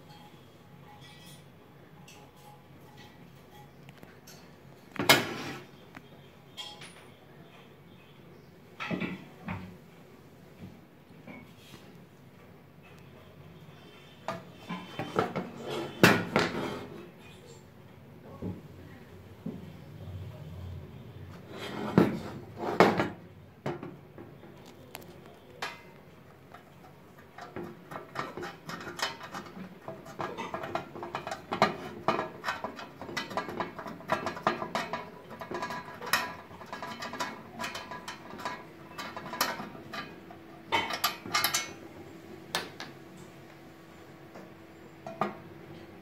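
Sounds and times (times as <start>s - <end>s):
metal clicks and clinks: 34.1s - 41.8s.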